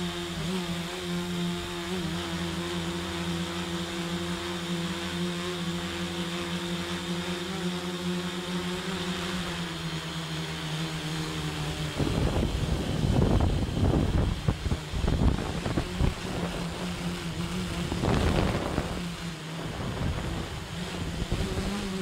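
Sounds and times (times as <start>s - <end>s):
rc copter rotors humming: 0.0s - 22.0s
wind buffeting on microphone: 11.8s - 22.0s.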